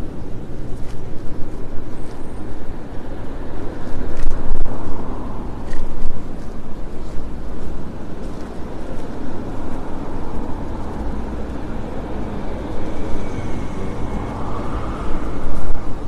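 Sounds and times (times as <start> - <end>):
street traffic: 0.0 - 16.0
wind on microphone: 0.0 - 16.0
faint whine: 9.8 - 16.0.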